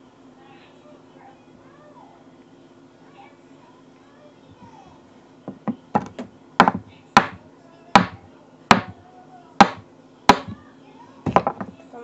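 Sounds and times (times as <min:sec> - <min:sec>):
sharp hard knocks ringing: 0:09.6 - 0:10.6.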